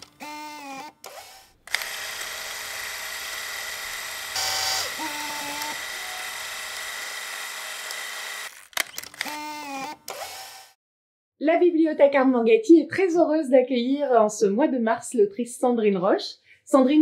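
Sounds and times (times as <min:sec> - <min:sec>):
held tones: 0:00.2 - 0:08.5.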